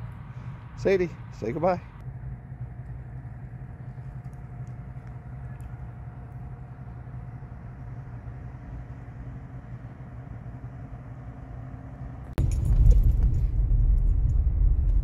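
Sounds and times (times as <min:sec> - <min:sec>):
low outdoor rumble: 0:00.0 - 0:15.0
clunks and rattles: 0:12.4 - 0:15.0.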